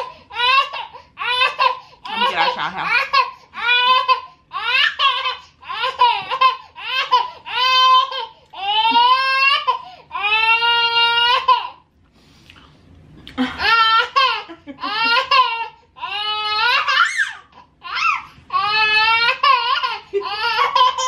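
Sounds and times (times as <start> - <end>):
toddler crying out: 13.6 - 21.0.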